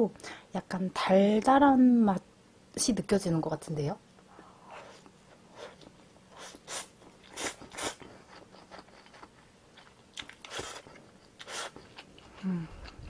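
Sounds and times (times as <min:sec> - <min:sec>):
chewing noodles: 0:05.6 - 0:13.0.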